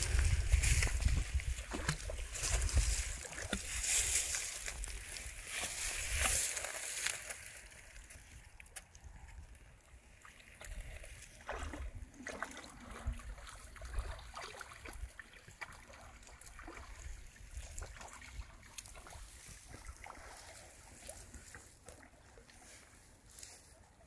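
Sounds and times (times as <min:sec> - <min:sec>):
dog splashing through water: 0:11.3 - 0:22.4.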